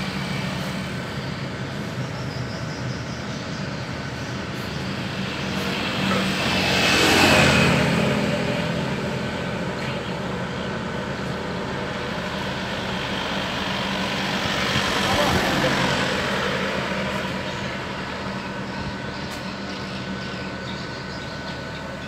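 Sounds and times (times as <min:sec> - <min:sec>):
diesel truck engine running: 0:00.0 - 0:22.0
vehicle passing: 0:04.4 - 0:19.2.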